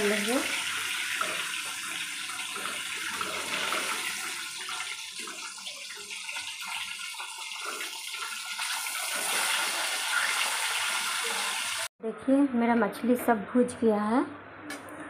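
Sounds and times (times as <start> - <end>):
fish frying in hot oil: 0.0 - 11.9.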